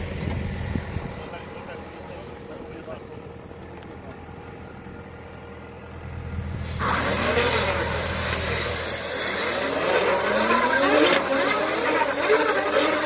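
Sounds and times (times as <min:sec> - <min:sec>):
engine hum: 0:00.0 - 0:13.0
wavering whine: 0:00.0 - 0:13.0
loud hiss: 0:06.2 - 0:12.9.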